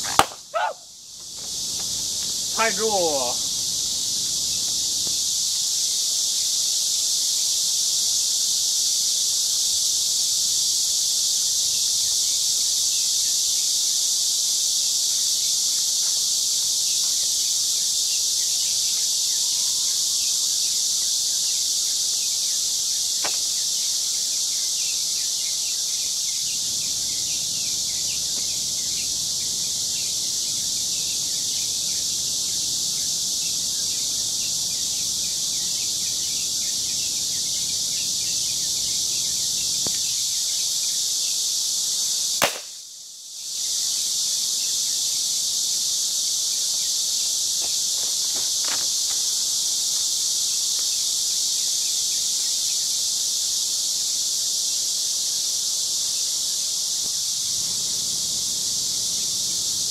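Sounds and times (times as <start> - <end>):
insects droning: 0.0 - 59.9
revolver shot: 42.4 - 42.7.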